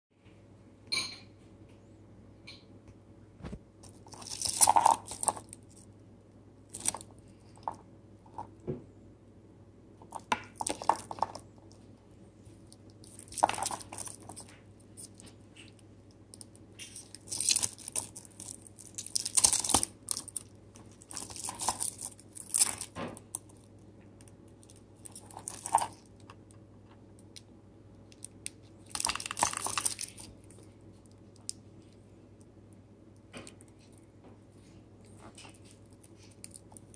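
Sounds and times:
faint steady hum: 0.1 - 36.9
plastic film crinkling: 12.5 - 23.5, 28.2 - 30.6.

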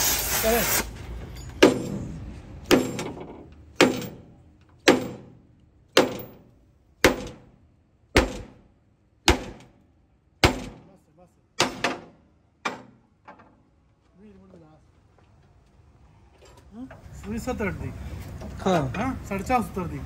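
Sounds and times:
short metallic ring: 1.3 - 2.2
hammer striking metal frame: 1.4 - 7.6, 8.2 - 8.7, 9.3 - 9.8, 10.4 - 11.0, 11.6 - 13.5.

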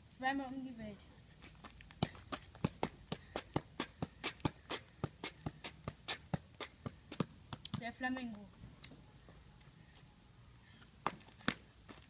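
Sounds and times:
football taps on foot: 2.0 - 7.9.

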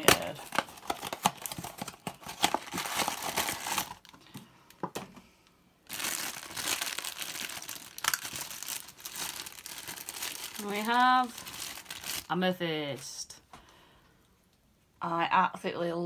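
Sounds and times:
plastic bag crinkling and tearing: 0.0 - 4.3, 5.9 - 12.5.

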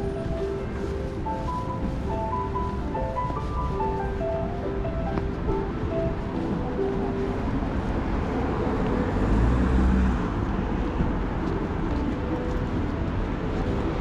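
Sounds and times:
street traffic noise: 0.0 - 14.0
vehicle passing close: 5.4 - 12.1.

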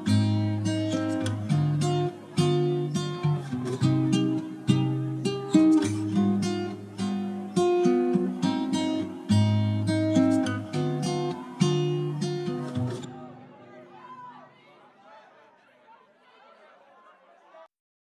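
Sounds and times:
plucked acoustic guitar: 0.0 - 13.9.

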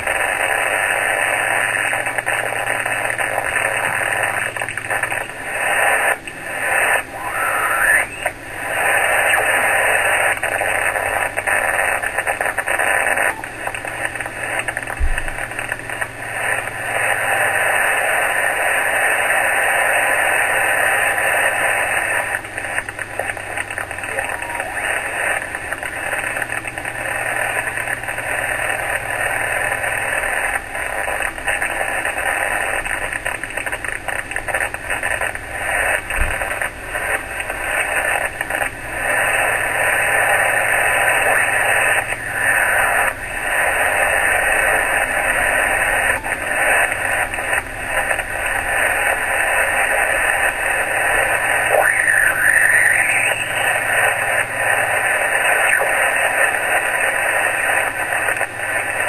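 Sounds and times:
radio static hiss and crackle: 0.0 - 59.0
radio whistle sliding in pitch: 7.1 - 8.3, 51.7 - 53.8.

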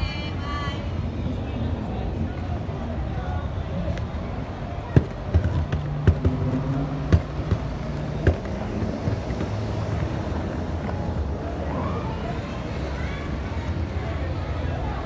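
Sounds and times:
footsteps on stone paving: 4.9 - 11.2.

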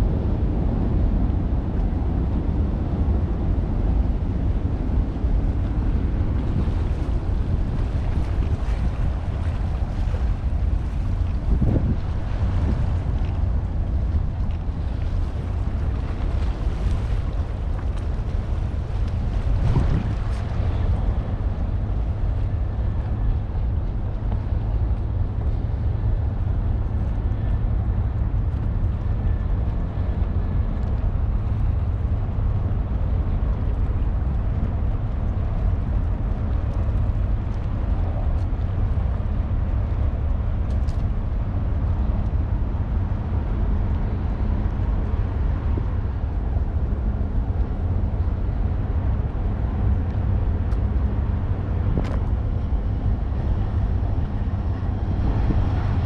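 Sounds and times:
low rumble: 0.0 - 56.0.

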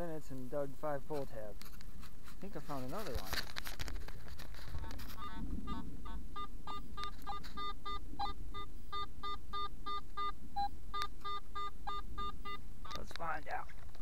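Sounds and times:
metal detector beeps: 5.2 - 13.1.

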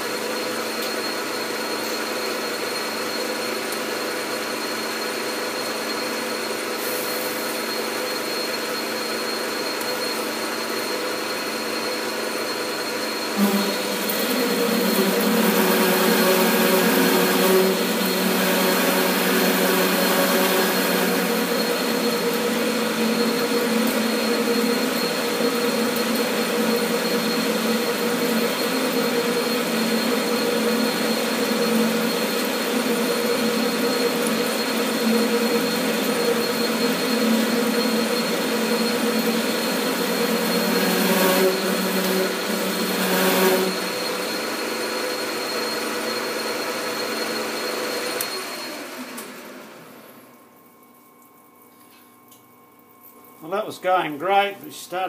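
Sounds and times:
metal lathe whining: 2.0 - 50.0
coolant flowing: 13.2 - 46.0.

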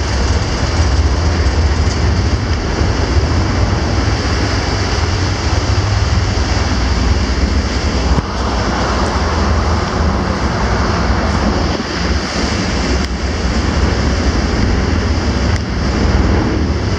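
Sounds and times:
steady low rumble: 0.0 - 16.9
water churning in ship wake: 0.0 - 16.9
wind buffeting microphone: 0.0 - 16.9.

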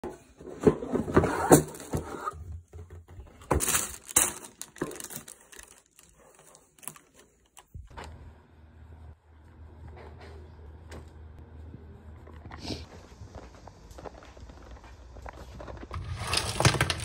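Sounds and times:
tissue paper rustling: 16.0 - 17.0.

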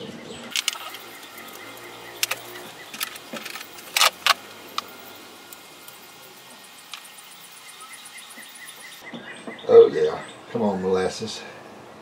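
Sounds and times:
crickets chirping: 0.5 - 9.2.

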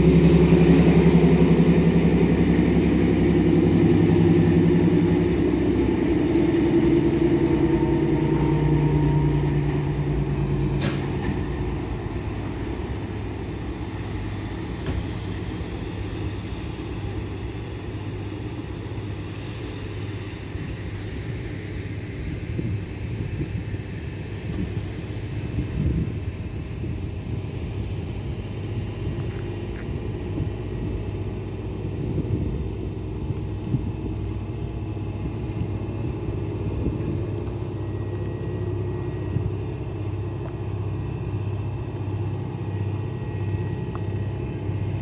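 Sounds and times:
train engine hum: 0.0 - 45.0
train wheel rumble: 0.0 - 45.0.

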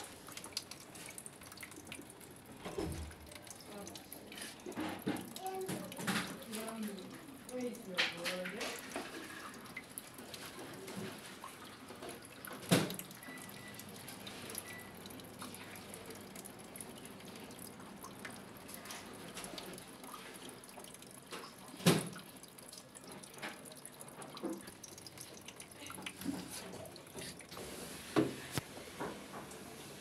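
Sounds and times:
water dripping: 0.0 - 30.0.

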